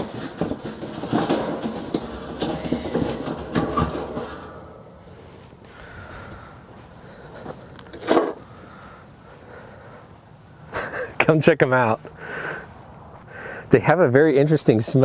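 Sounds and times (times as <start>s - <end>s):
steel lid clunk on ground: 7.9s - 8.4s.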